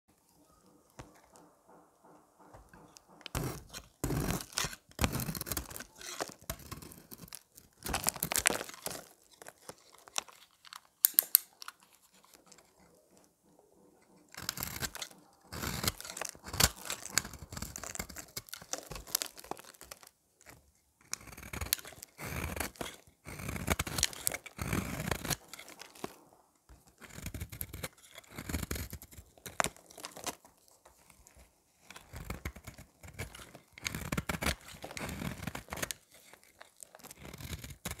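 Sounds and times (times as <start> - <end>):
knife blade scraping soap: 2.5 - 38.0.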